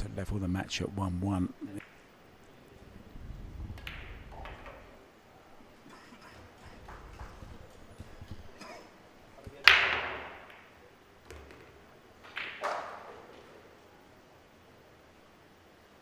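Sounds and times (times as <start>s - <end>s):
cue ball cracking into balls: 1.7s - 2.0s, 3.7s - 5.0s, 9.4s - 13.6s
pool balls colliding: 1.7s - 2.1s, 3.7s - 5.1s, 9.4s - 13.7s.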